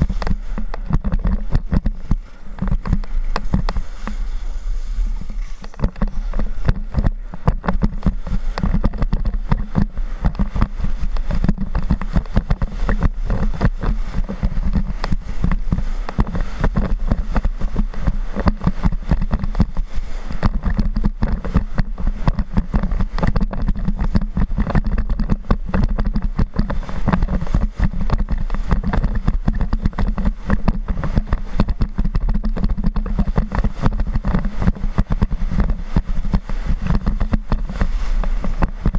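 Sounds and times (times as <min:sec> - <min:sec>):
skis sliding on snow: 0:00.0 - 0:38.9
wind buffeting microphone: 0:00.0 - 0:38.9.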